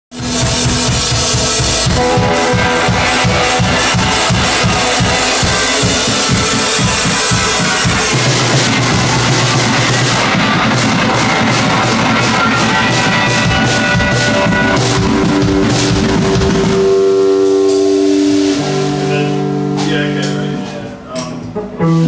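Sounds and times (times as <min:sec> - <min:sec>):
drum beat with cymbals: 0:00.1 - 0:21.5
electric guitar: 0:00.1 - 0:22.0.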